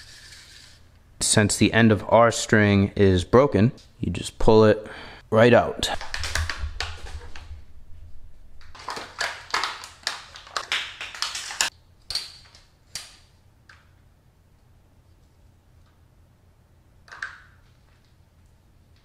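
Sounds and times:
plastic blister pack crinkling: 5.8s - 7.5s, 8.6s - 11.7s.

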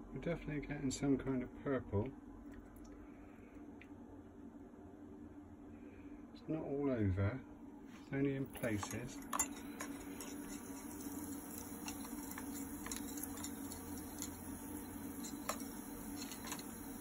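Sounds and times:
low electrical hum: 0.0s - 17.0s
small crackles and clicks: 8.6s - 17.0s.

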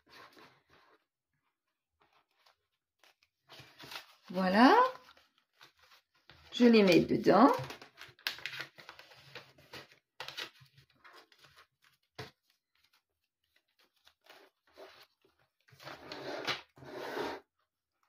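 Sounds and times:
banknotes and plastic pouch rustling: 2.0s - 16.4s.

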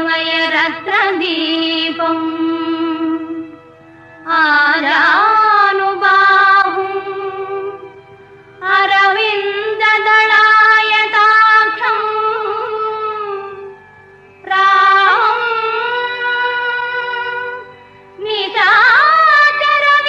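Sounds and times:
film music with wavering melody: 0.0s - 20.0s.

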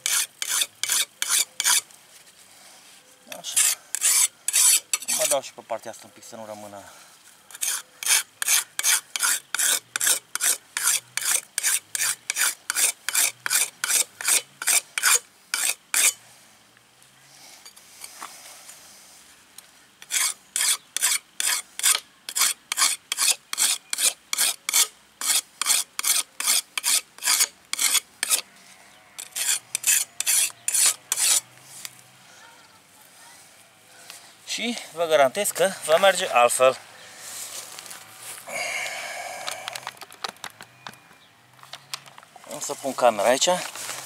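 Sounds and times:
whetstone rasping on steel blade: 0.0s - 1.8s, 3.4s - 5.4s, 7.5s - 16.2s, 20.0s - 28.4s, 29.2s - 31.4s.

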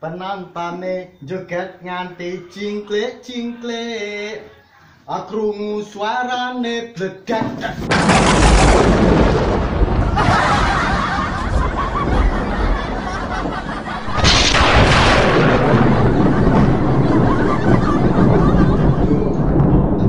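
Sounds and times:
loud blast bang: 7.6s - 11.5s, 12.1s - 20.0s
men laughing: 10.1s - 20.0s.

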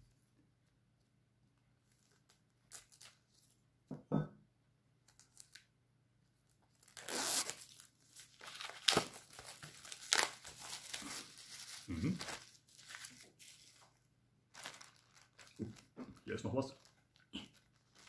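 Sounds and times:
shrink-wrap tearing and crinkling: 2.0s - 3.5s, 6.7s - 18.0s.

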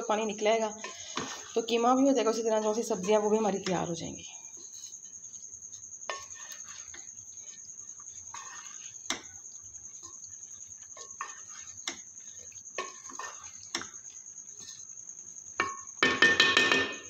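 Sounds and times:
wooden spoon stirring in pot: 0.0s - 17.0s
spoon knocking against pot: 15.6s - 17.0s.

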